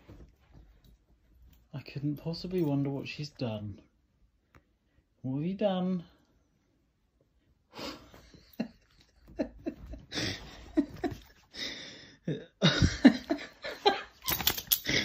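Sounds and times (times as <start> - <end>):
person laughing quietly: 7.8 - 14.2.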